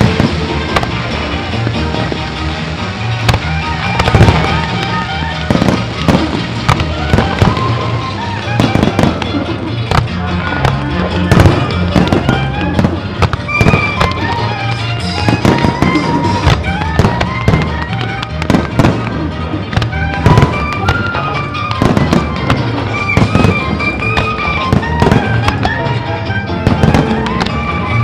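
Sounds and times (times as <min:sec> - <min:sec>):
fireworks bangs: 0:00.0 - 0:28.0
music soundtrack: 0:00.0 - 0:28.0.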